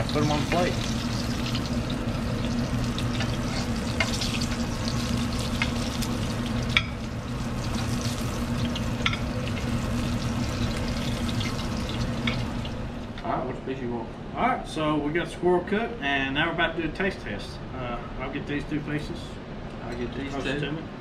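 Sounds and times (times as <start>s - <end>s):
oil sizzling in skillet: 0.0s - 13.2s
steady low hum: 0.0s - 21.0s.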